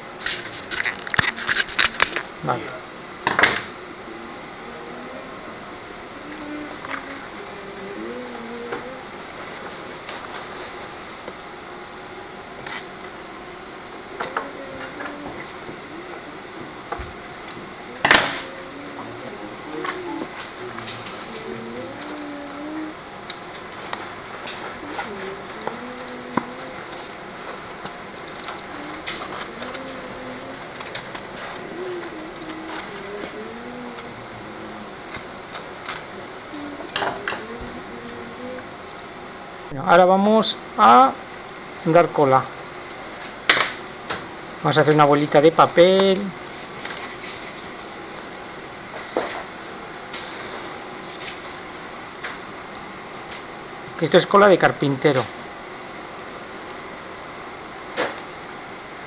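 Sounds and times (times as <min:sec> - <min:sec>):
stiff paper crinkling: 0:00.2 - 0:02.3, 0:24.0 - 0:33.3
faint melody: 0:17.6 - 0:23.1.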